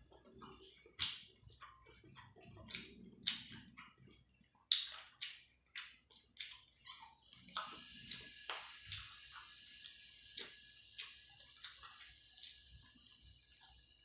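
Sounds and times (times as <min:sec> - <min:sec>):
wet chewing and mouth smacks: 0:00.2 - 0:13.8
steady hiss: 0:07.4 - 0:14.0.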